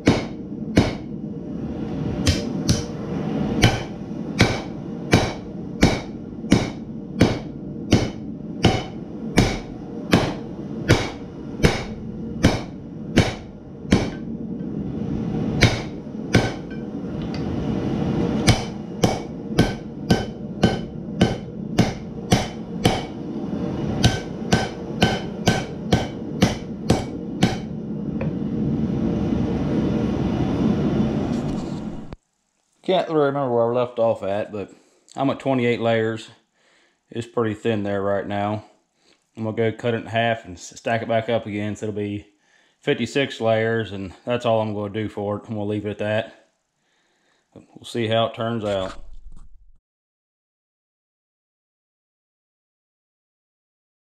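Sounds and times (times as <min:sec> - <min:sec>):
hammer blows on steel on anvil: 0:00.0 - 0:01.1, 0:02.2 - 0:02.9, 0:03.6 - 0:14.3, 0:15.6 - 0:16.9, 0:18.4 - 0:23.2, 0:24.0 - 0:27.8
steady rumble: 0:00.0 - 0:32.3.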